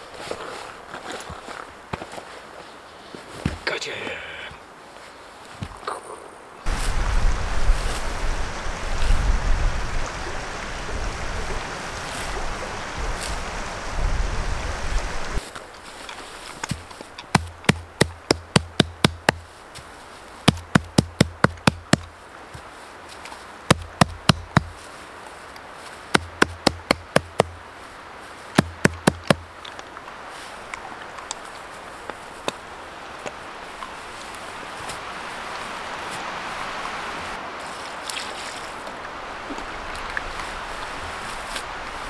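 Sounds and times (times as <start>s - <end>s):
rushing noise with low rumble: 6.7s - 15.4s
rapid sharp knocks: 17.3s - 19.4s, 20.5s - 22.1s, 23.7s - 24.8s, 26.1s - 27.6s, 28.6s - 29.5s.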